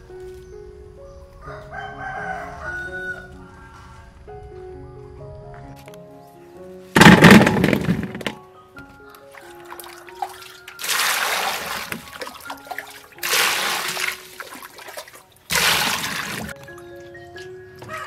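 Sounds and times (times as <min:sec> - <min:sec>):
water pouring and splashing in basin: 0:09.3 - 0:17.2.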